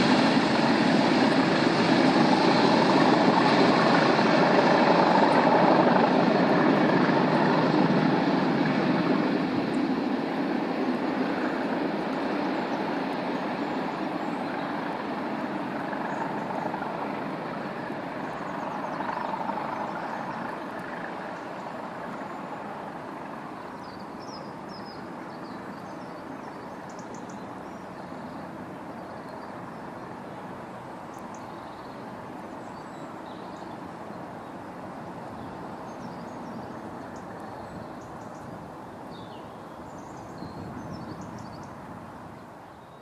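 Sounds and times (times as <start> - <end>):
freight train rumbling: 0.0 - 42.6
birds chirping: 23.5 - 43.0.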